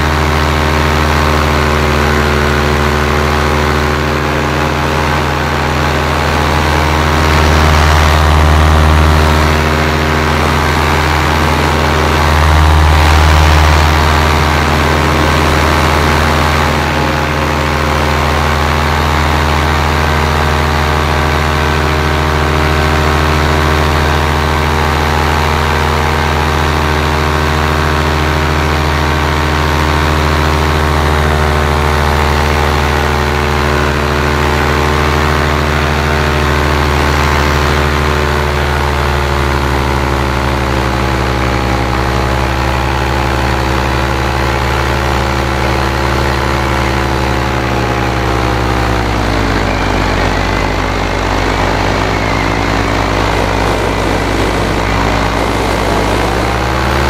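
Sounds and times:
paramotor engine and propeller: 0.0s - 57.0s.

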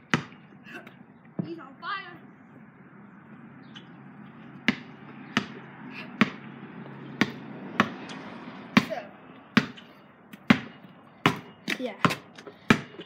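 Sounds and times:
basketball bouncing on concrete: 0.0s - 0.4s, 3.7s - 13.0s.

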